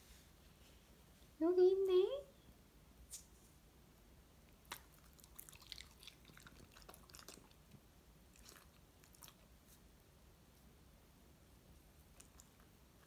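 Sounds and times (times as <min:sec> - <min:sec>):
dog chewing with wet clicks: 0:04.6 - 0:09.5, 0:12.1 - 0:12.7.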